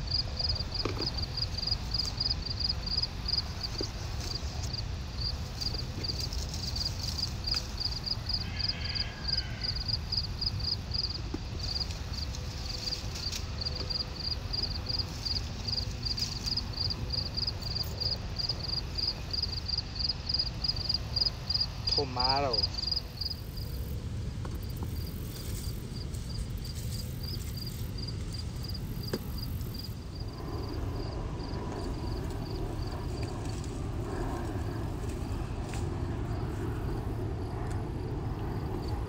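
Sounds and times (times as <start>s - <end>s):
insects chirping: 0.0s - 39.0s
wind rumble on microphone: 23.0s - 39.0s.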